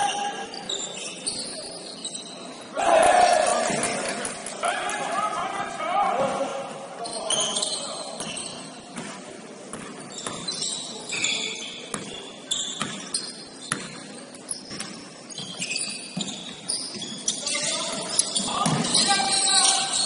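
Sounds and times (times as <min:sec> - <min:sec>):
shoes squeaking on hardwood: 0:09.8 - 0:20.0
basketball bouncing: 0:11.9 - 0:12.1, 0:13.7 - 0:14.1.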